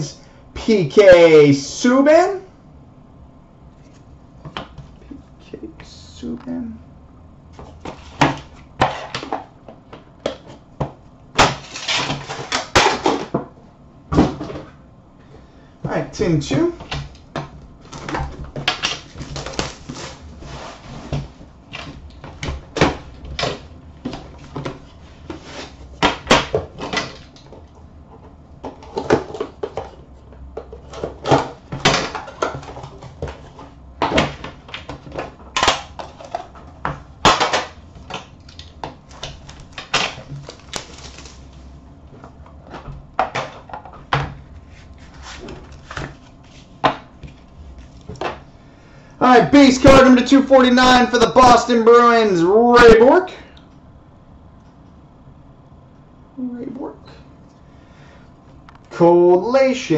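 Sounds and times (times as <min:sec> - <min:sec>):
plastic wrap crinkling: 0:17.8 - 0:20.9, 0:38.2 - 0:41.8.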